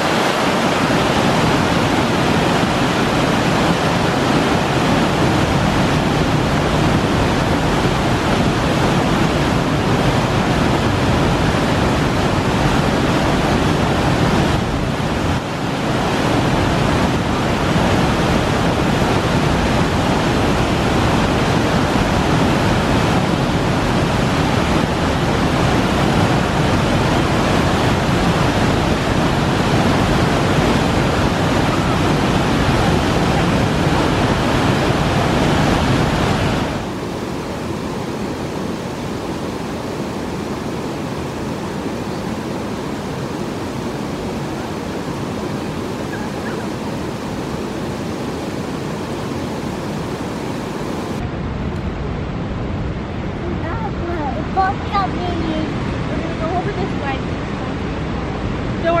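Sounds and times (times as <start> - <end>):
waterfall rushing: 0.0 - 51.4, 53.4 - 59.0.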